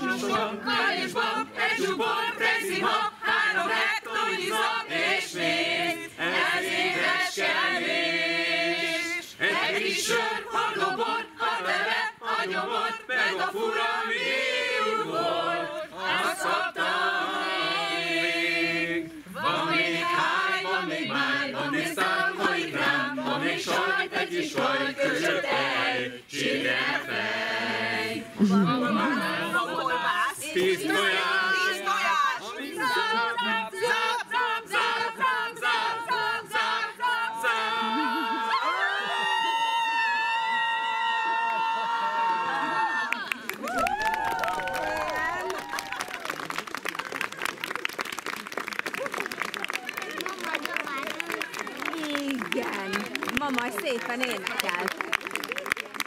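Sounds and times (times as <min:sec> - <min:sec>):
men and women singing a cappella: 0:00.0 - 0:40.8.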